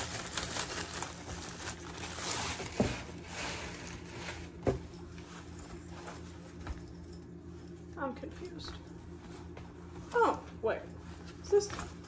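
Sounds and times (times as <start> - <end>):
plastic packaging crinkling: 0.0 - 4.6.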